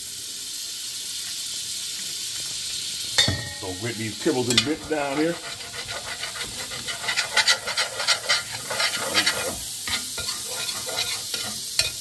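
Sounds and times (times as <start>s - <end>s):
butter and oil sizzling: 0.0s - 12.0s
metal spoon scraping a pot: 3.9s - 12.0s
spoon clinking: 8.8s - 12.0s.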